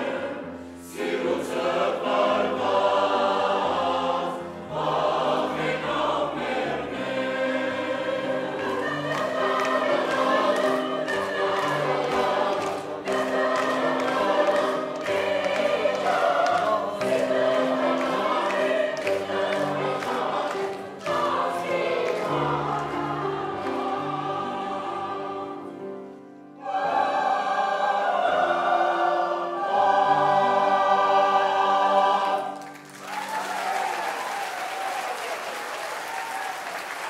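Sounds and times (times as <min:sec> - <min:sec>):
mixed choir singing: 0:00.0 - 0:32.8
piano accompaniment: 0:00.0 - 0:33.3
audience applause: 0:08.6 - 0:23.2, 0:32.4 - 0:37.0.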